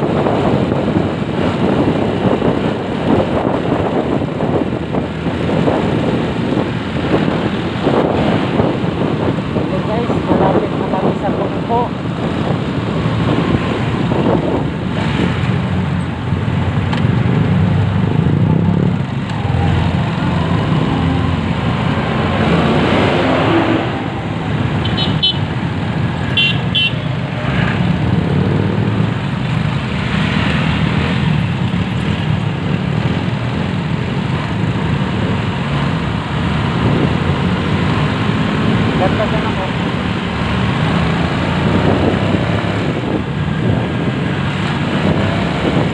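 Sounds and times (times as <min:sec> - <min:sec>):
motorcycle engine: 0:00.0 - 0:45.9
vehicle horn beeps: 0:24.8 - 0:25.5, 0:26.3 - 0:27.1.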